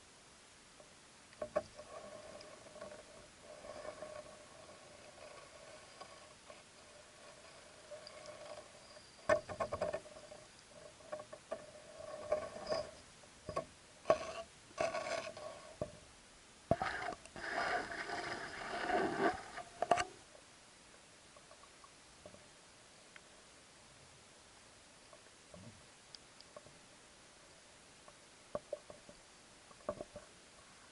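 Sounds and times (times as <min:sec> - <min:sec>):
clicks and knocks underwater: 0:09.3 - 0:12.8, 0:28.5 - 0:30.3
scraping and rattling: 0:16.7 - 0:20.0.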